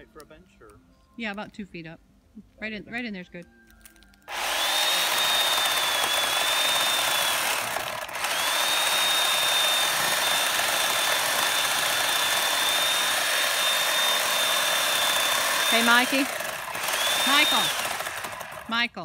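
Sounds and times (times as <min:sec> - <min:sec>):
electric chainsaw cutting wood: 0:04.3 - 0:18.9.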